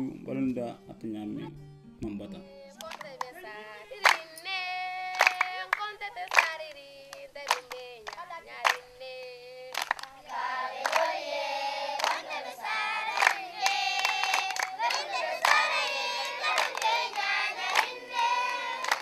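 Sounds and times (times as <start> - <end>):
hand clapping: 2.8 - 3.4, 4.0 - 4.5, 5.1 - 11.2, 12.0 - 19.0
children singing together: 10.1 - 19.0.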